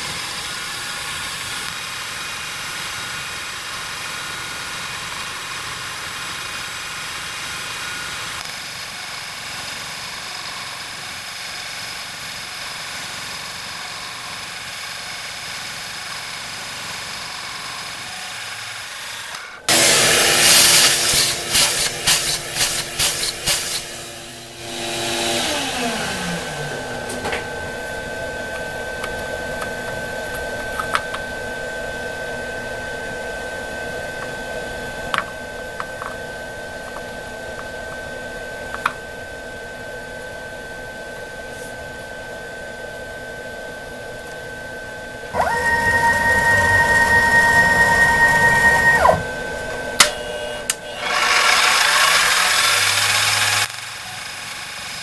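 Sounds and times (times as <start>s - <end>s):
milling machine whine: 6.7s - 38.9s, 44.8s - 55.0s
motor starting up: 8.3s - 31.0s, 45.4s - 55.0s
shop vacuum sucking metal chips: 17.5s - 28.0s, 45.4s - 55.0s.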